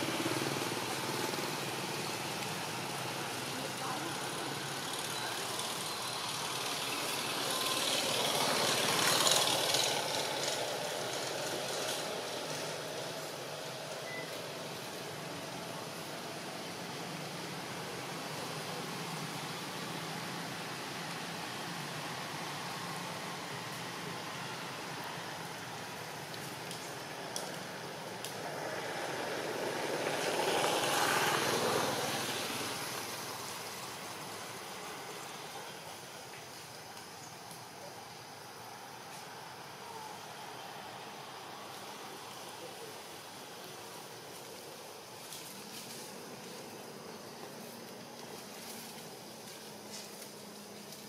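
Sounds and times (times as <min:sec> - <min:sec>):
distant passing engine: 0:00.0 - 0:36.2
steady hiss: 0:00.0 - 0:51.0
faint ticks: 0:26.2 - 0:28.4.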